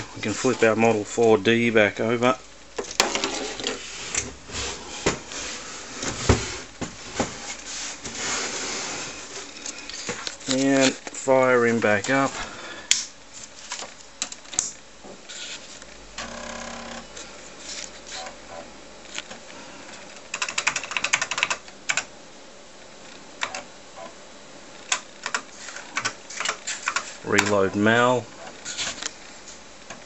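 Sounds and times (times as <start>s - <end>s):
floppy drive buzzing: 14.2s - 20.2s
keyboard keys clicking: 20.3s - 22.1s.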